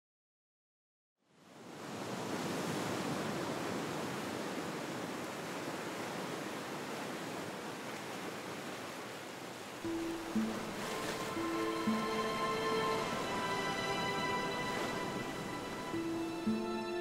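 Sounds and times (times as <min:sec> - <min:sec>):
surf washing against rocky shore: 0:09.8 - 0:16.5.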